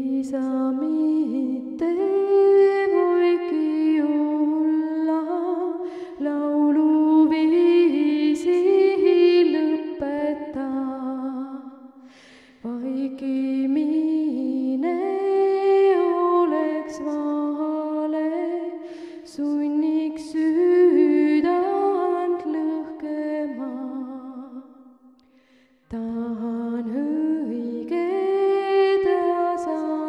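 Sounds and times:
woman singing unaccompanied: 0.0 - 11.8, 12.6 - 24.6, 25.9 - 30.0
singer breathing: 12.0 - 12.6, 18.8 - 19.3, 25.2 - 25.9.

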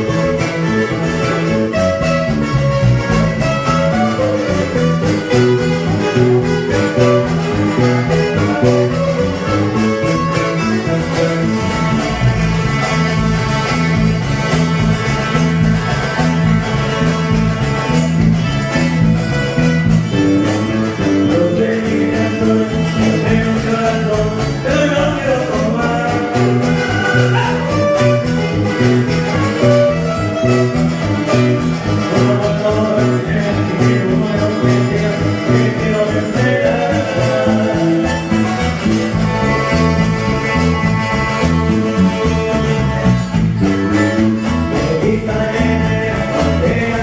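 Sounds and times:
acoustic guitars strumming: 0.0 - 47.0
bass line: 0.0 - 47.0.

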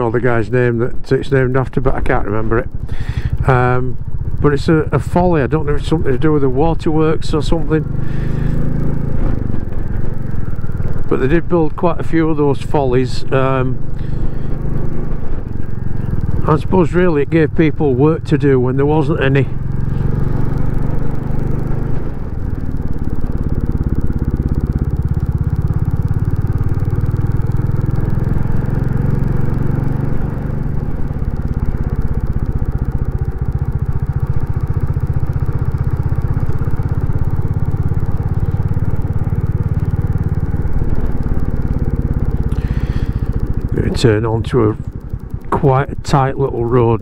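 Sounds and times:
motorcycle engine running: 0.0 - 47.0.

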